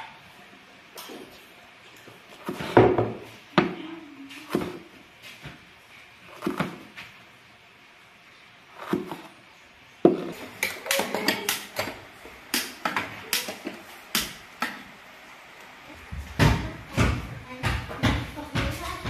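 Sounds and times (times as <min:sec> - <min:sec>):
knife chopping on cutting board: 0:04.5 - 0:04.8, 0:06.3 - 0:06.9, 0:08.8 - 0:09.3.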